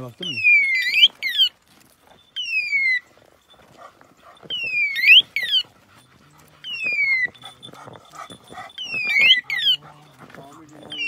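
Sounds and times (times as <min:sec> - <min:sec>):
dog giving high-pitched cries: 0:00.3 - 0:01.6, 0:02.4 - 0:11.0.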